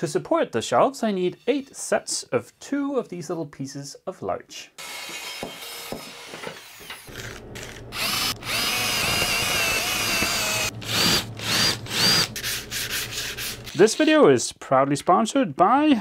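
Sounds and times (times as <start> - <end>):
cordless drill motor whine: 6.7 - 12.4.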